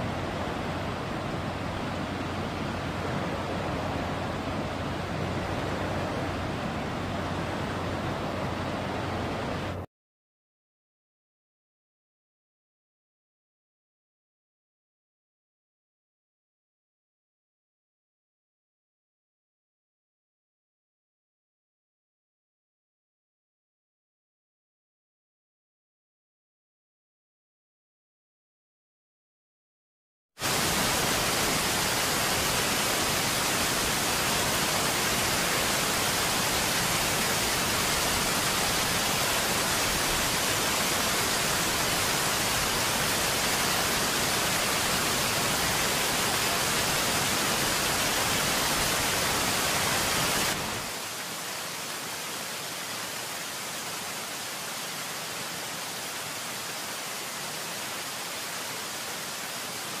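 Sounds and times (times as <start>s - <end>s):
running water rushing: 0.0s - 9.8s, 30.4s - 60.0s.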